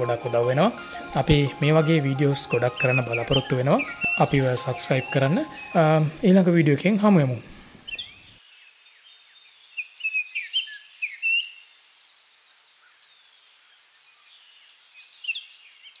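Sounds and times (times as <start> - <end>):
birds chirping: 0.0 - 8.4
high insect drone: 0.0 - 9.3.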